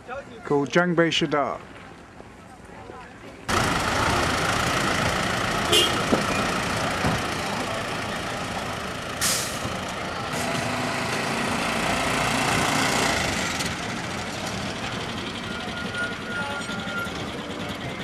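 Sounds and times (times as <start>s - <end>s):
vehicle engines and road noise: 1.1s - 18.0s
short sharp hiss: 9.2s - 9.6s.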